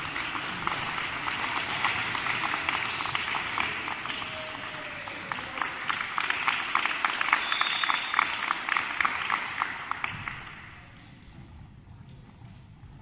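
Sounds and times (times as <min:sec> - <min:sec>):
group hand clapping: 0:00.0 - 0:11.3.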